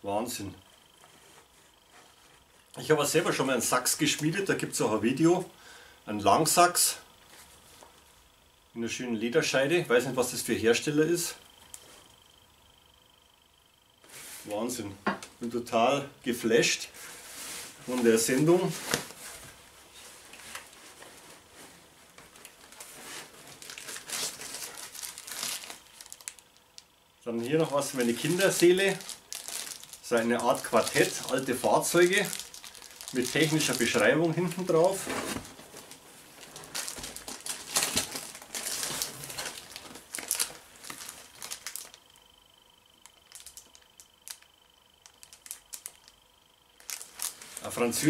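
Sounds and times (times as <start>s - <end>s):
hands rummaging in cardboard parcel: 17.0s - 26.4s, 27.6s - 42.0s
packing rustling and crinkling: 17.0s - 26.5s, 27.4s - 42.2s, 43.0s - 46.1s, 46.8s - 48.0s.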